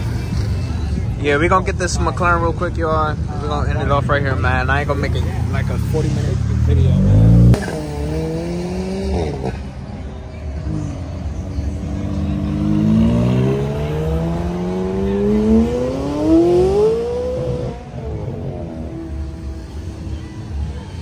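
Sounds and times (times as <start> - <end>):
car engine accelerating hard: 5.7 - 9.7, 10.5 - 20.1.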